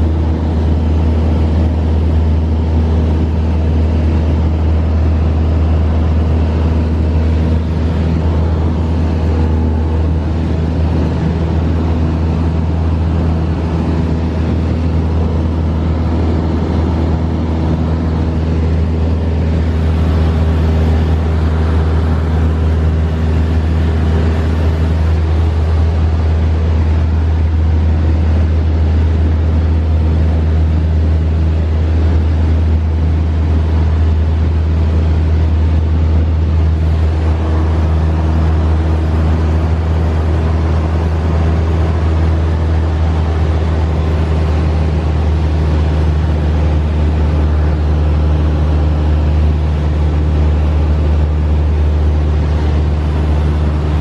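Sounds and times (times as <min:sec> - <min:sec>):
plane engine and propeller droning: 0:00.0 - 0:54.0.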